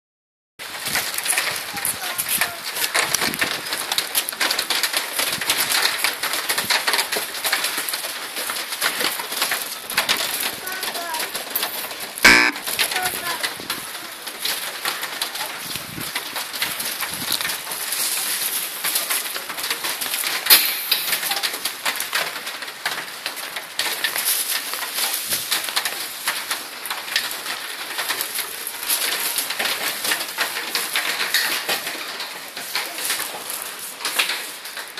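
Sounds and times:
rain pattering: 0.6s - 34.9s
sharp knock: 12.2s - 12.6s, 20.5s - 21.3s.

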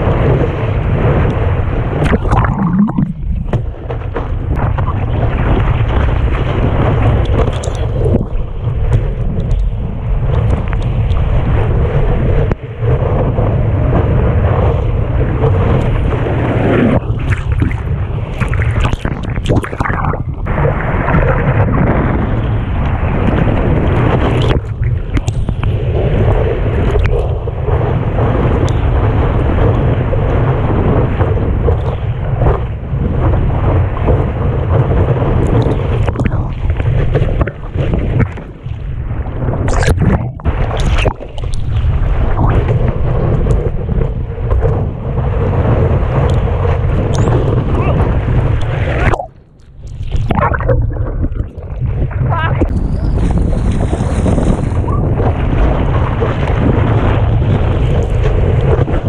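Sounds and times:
whitewater rushing and splashing: 0.0s - 9.2s, 13.9s - 31.7s, 32.4s - 49.4s
low buffeting rumble on microphone: 0.0s - 59.0s
whitewater rushing: 2.0s - 3.7s.

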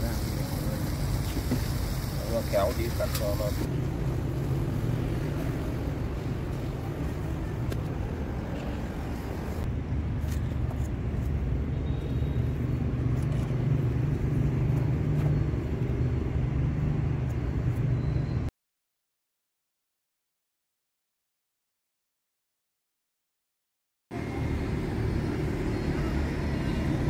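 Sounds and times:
road traffic rumble: 0.0s - 18.5s, 24.1s - 27.0s.

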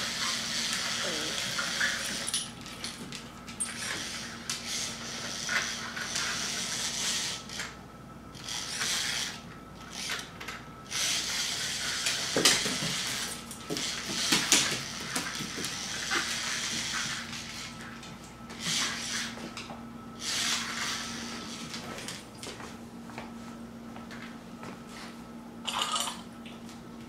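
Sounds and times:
toy robot rolling on tiled floor: 0.0s - 2.5s, 3.6s - 7.7s, 8.4s - 10.2s, 10.9s - 17.7s, 20.2s - 21.0s.

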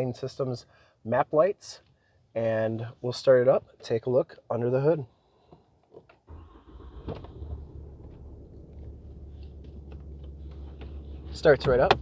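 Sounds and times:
diesel engine starting and idling: 6.3s - 12.0s.

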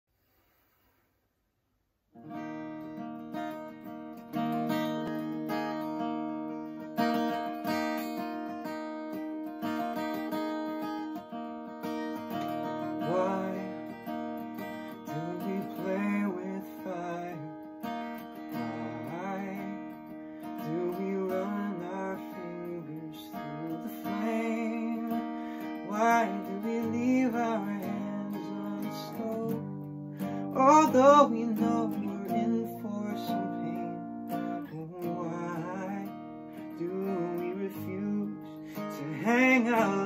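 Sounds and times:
acoustic guitar strumming: 2.2s - 40.0s
man singing: 12.3s - 40.0s.

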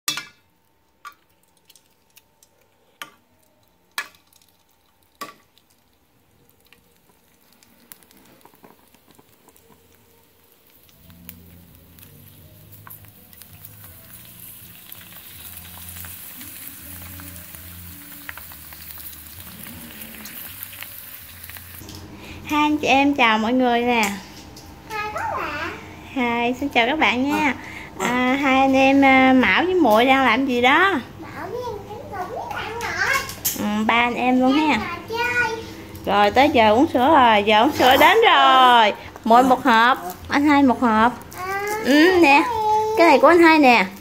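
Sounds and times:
oil sizzling and crackling: 0.1s - 44.0s.

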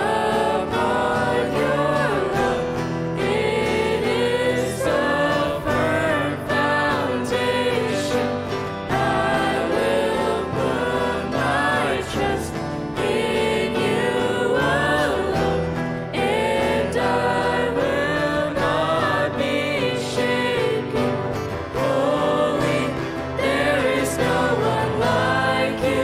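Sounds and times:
guitar accompaniment: 0.0s - 26.0s
women singing in harmony: 0.0s - 26.0s.

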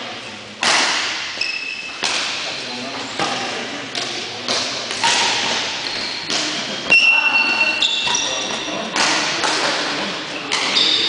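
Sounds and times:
racket striking shuttlecock: 0.6s - 2.6s, 3.2s - 6.5s, 8.9s - 9.8s, 10.5s - 10.9s
shoes squeaking on court floor: 1.4s - 3.2s, 4.6s - 9.0s, 10.4s - 11.0s.

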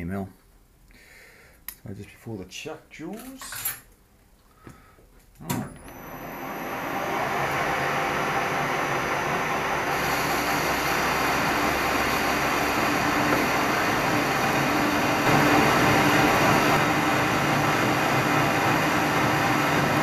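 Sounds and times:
metal lathe running: 5.9s - 20.0s.

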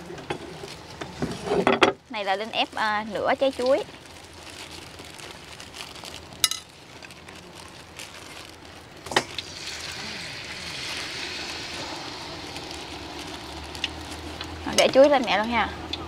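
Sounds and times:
batter sizzling in hot oil: 2.9s - 16.0s.

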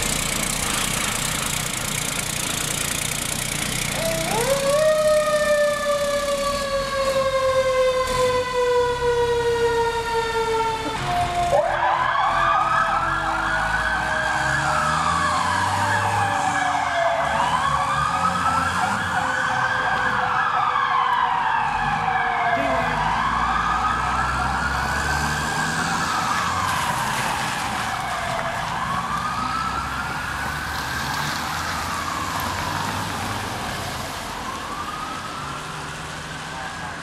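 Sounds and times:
diesel engine rumble: 0.0s - 37.0s
fire truck siren wailing: 3.6s - 37.0s.

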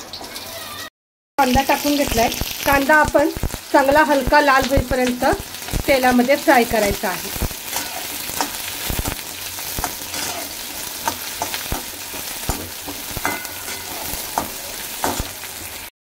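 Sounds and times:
onions sizzling in hot oil: 0.0s - 15.9s
metal spatula scraping pan: 7.3s - 15.8s.

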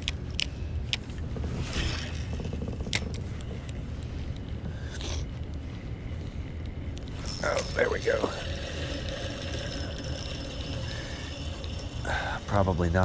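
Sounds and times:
low steady rumble: 0.0s - 13.0s
fishing reel clicking and ticking: 7.2s - 13.0s.

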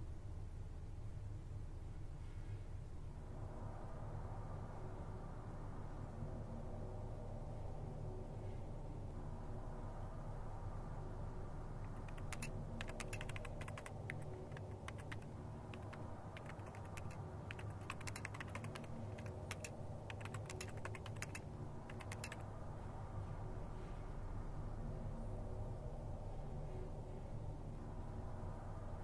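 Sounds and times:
typing on laptop keyboard: 11.8s - 22.4s.

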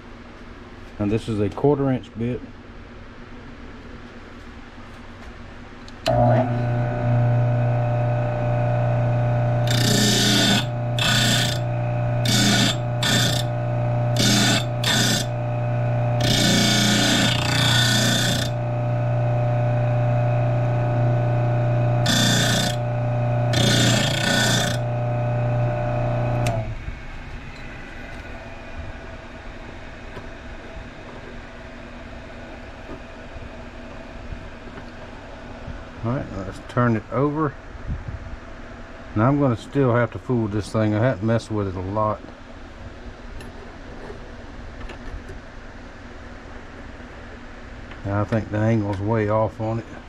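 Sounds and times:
drill bit grinding on wheel: 6.1s - 26.7s
bench grinder motor humming: 6.1s - 28.6s.

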